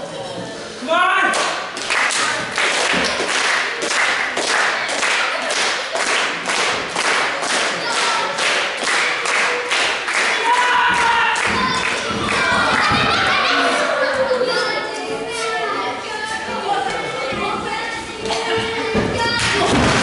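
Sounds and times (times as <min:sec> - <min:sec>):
crowd clapping in rhythm: 0:01.3 - 0:13.1
crowd shouting or chanting: 0:10.3 - 0:14.4.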